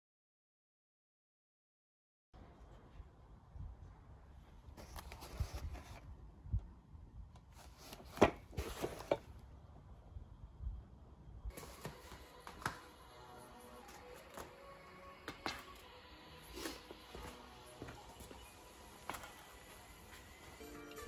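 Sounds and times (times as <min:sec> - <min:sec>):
cardboard packaging rustling: 0:04.8 - 0:06.0, 0:07.6 - 0:09.3.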